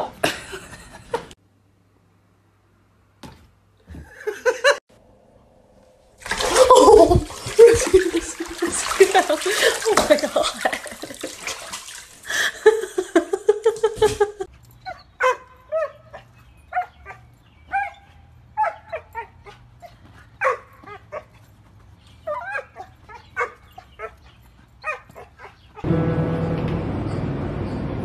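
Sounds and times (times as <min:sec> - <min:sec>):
small dog yipping: 0:14.8 - 0:19.6, 0:22.2 - 0:24.2, 0:24.8 - 0:25.9.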